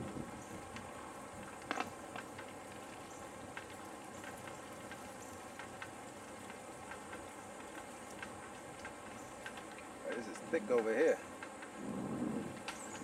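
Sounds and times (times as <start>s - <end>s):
footsteps on sandy trail: 0.0s - 13.0s
outdoor hiss: 0.0s - 13.0s.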